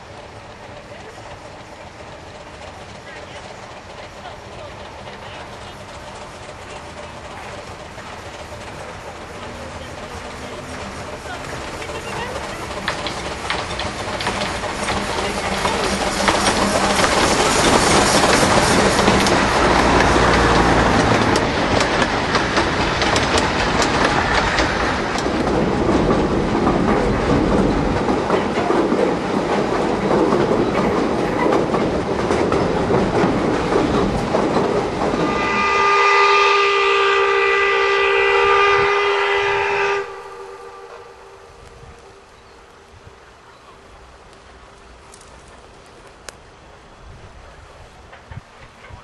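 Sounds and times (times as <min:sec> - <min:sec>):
train wheels clicking over rail joints: 0:00.0 - 0:49.0
steam locomotive whistle: 0:35.2 - 0:41.5.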